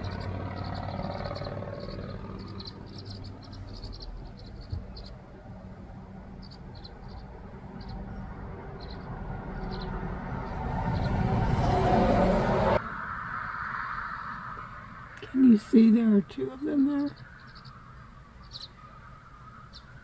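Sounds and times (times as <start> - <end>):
nestling birds chirping: 0.0 - 12.8, 13.4 - 20.0
low rumble: 0.0 - 15.3.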